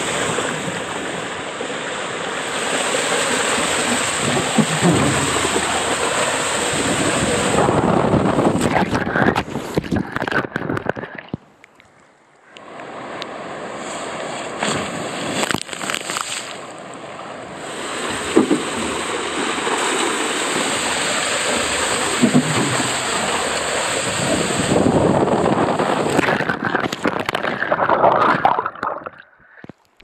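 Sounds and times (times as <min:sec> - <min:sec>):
rushing and splashing water: 0:00.0 - 0:30.0
muffled underwater hush: 0:03.8 - 0:12.6, 0:21.7 - 0:23.6.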